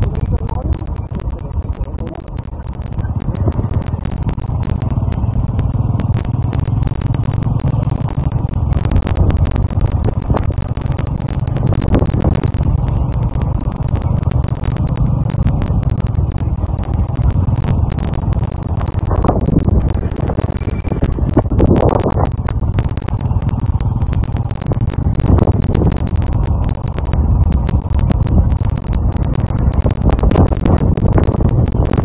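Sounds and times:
crackles: 0.0 - 32.0
motorcycle engine and road rumble: 0.0 - 32.0
wind buffeting microphone: 16.8 - 23.2.

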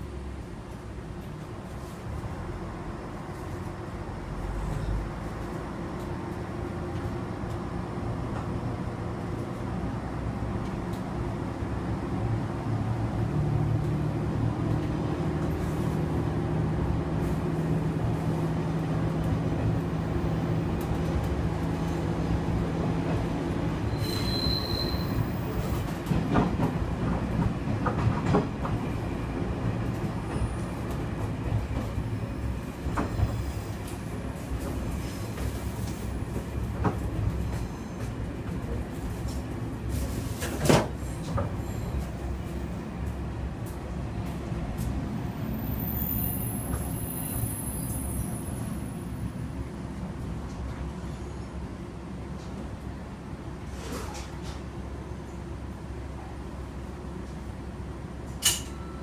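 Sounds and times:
wheel squeal: 23.9 - 25.7.

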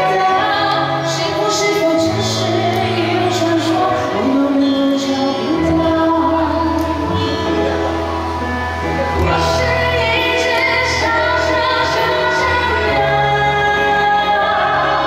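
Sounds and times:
woman singing: 0.0 - 8.0, 9.1 - 15.0.

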